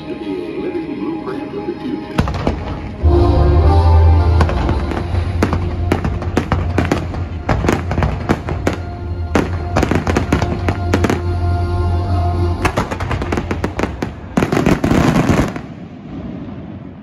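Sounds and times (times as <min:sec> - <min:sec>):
music: 0:00.0 - 0:14.7
fireworks bangs and crackles: 0:02.2 - 0:03.0, 0:04.4 - 0:11.4, 0:12.6 - 0:17.0.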